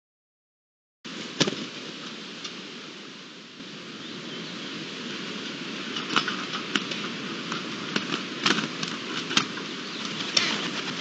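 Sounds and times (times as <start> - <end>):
outdoor hiss: 1.1 - 11.0
birds tapping on wooden platform: 6.0 - 11.0.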